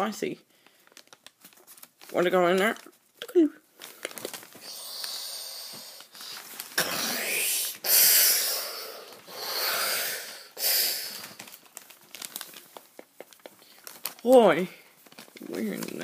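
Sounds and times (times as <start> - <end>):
child making whooshing sounds: 6.8 - 11.2.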